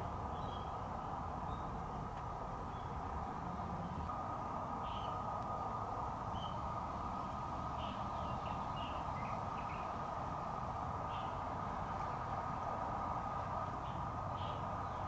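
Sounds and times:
steady background drone: 0:00.0 - 0:15.0
birds chirping: 0:00.3 - 0:05.7, 0:06.3 - 0:06.8, 0:07.7 - 0:10.0.

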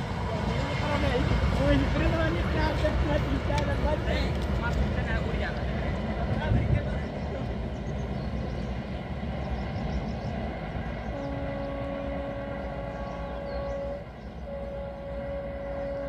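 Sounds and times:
locomotive horn blasts: 0:11.1 - 0:16.0.

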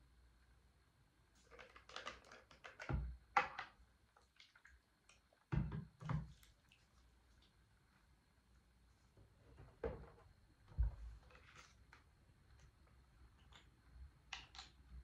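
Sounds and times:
plastic bottle cap rustles and clicks: 0:01.4 - 0:03.7.

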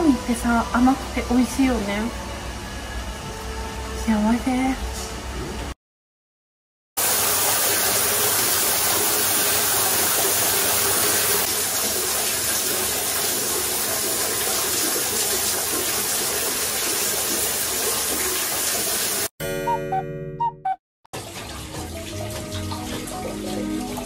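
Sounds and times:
water pouring into a bath: 0:07.0 - 0:19.3, 0:21.1 - 0:24.0.

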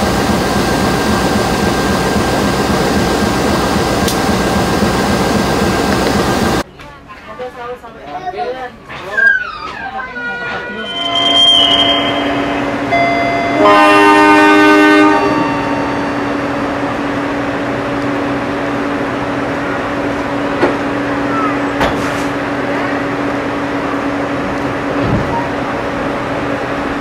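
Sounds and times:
train horn blast: 0:10.3 - 0:16.8.

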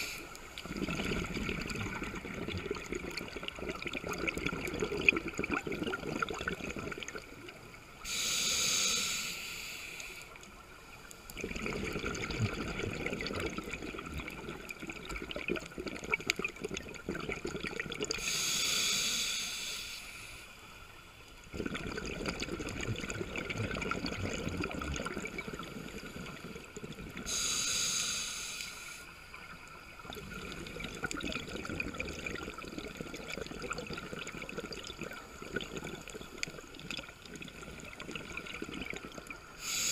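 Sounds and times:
regulator hissing inhalation: 0:00.0 - 0:00.4, 0:08.0 - 0:10.4, 0:18.2 - 0:20.6, 0:27.2 - 0:29.2, 0:39.6 - 0:39.9
bubbling exhalation: 0:00.6 - 0:07.5, 0:11.4 - 0:18.3, 0:21.5 - 0:27.4, 0:30.0 - 0:39.9.

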